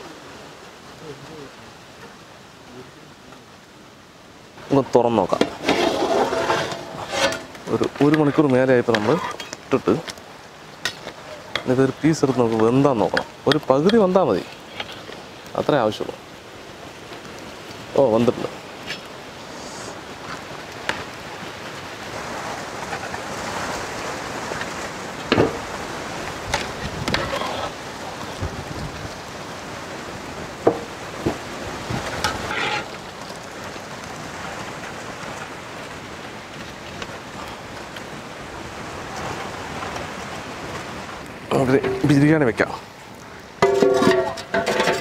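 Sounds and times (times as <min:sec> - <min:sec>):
spoon clinking on pot and plate: 0:43.6 - 0:45.0.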